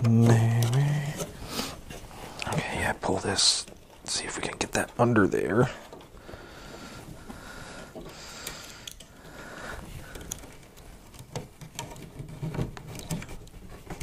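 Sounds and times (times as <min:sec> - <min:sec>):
cables rustling and scraping: 0:00.0 - 0:14.0
small clicks and knocks: 0:03.4 - 0:14.0.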